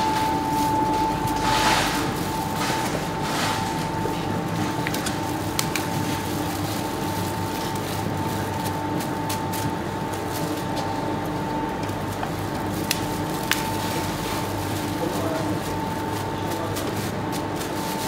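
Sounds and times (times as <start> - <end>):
high whine: 0.0 - 9.2
bakery machinery humming: 0.0 - 18.0.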